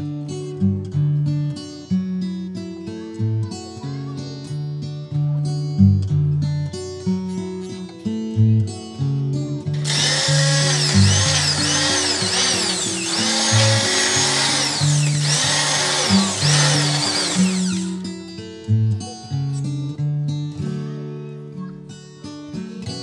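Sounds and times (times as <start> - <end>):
immersion blender motor whine: 9.8 - 18.0.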